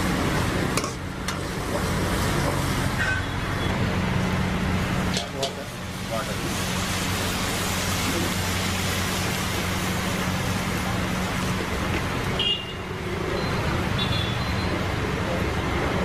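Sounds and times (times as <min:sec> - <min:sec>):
water pouring into hot wok: 0:03.9 - 0:12.2.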